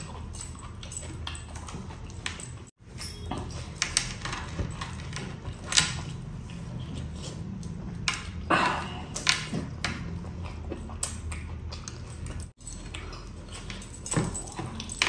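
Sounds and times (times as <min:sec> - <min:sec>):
chewing with wet mouth clicks: 0:00.0 - 0:02.8, 0:09.1 - 0:13.8.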